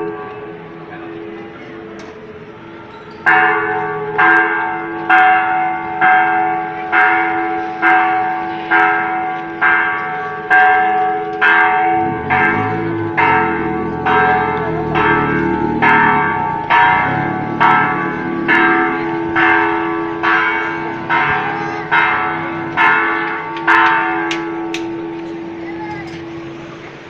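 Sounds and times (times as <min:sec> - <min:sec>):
church bell tolling: 0:00.0 - 0:26.5
low rumble: 0:11.8 - 0:20.1.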